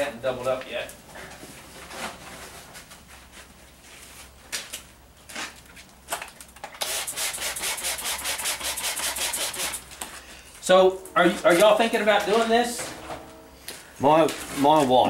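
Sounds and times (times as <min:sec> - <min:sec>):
rubbing scraping strokes: 0:06.8 - 0:09.9.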